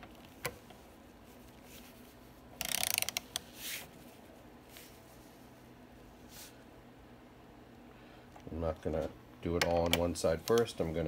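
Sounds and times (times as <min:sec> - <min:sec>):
torque wrench ratchet clicking: 0:02.6 - 0:03.2.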